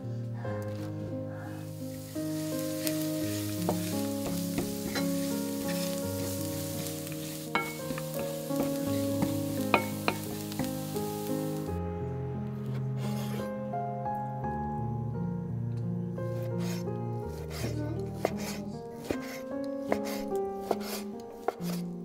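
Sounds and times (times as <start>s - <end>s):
shallot sizzling in oil: 1.3s - 11.8s, 16.3s - 22.0s
wooden spatula scraping pan: 1.9s - 11.0s, 13.0s - 13.5s, 16.4s - 22.0s.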